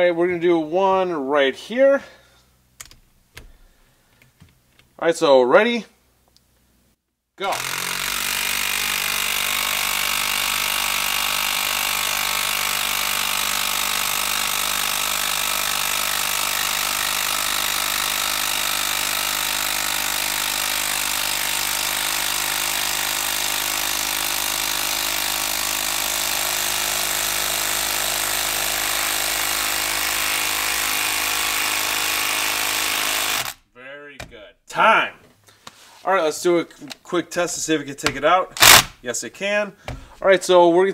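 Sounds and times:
impact driver hammering: 7.5s - 33.6s, 38.0s - 39.0s.

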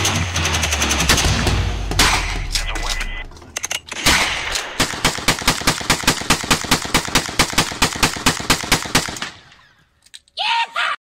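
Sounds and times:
rapid rifle fire: 0.0s - 2.5s, 4.0s - 9.4s.

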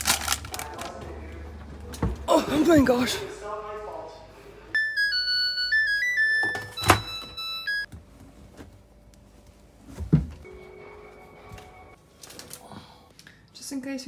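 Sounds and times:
washing machine beeping tune: 4.8s - 7.9s, 10.4s - 12.0s.

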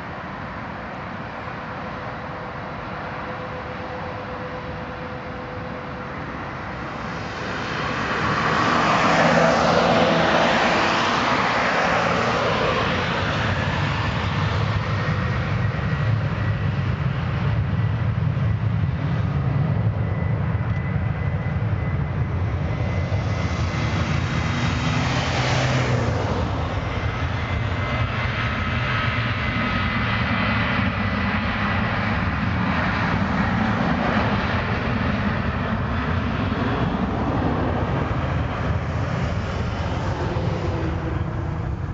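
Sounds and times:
jet engines at takeoff power: 0.0s - 41.9s.

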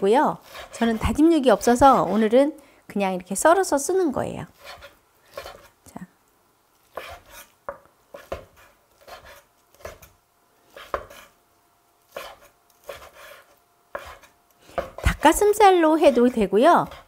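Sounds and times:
knife chopping on wooden board: 6.9s - 10.1s, 10.7s - 11.3s, 12.1s - 15.4s.

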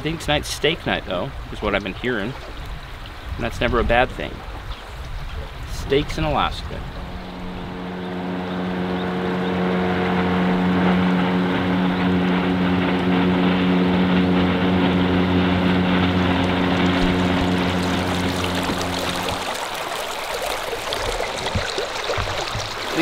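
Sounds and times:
engine drone: 6.8s - 23.0s.

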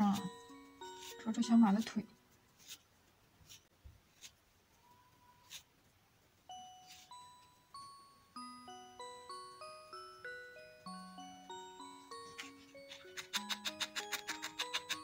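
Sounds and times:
music-box-like chiming music: 0.0s - 2.2s, 6.4s - 15.0s.

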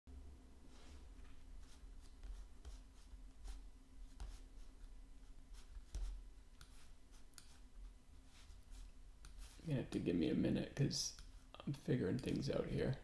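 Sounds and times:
light clicks and taps: 12.1s - 12.6s.

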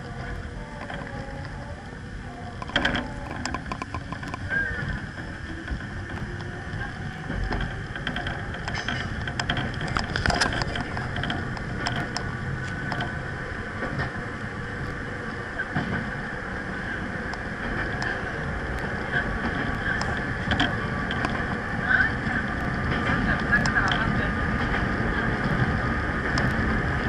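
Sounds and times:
steady high hum: 0.0s - 27.0s
train wheels rumbling on rails: 0.0s - 27.0s
sharp clicks and knocks: 2.6s - 13.2s, 17.3s - 21.6s.

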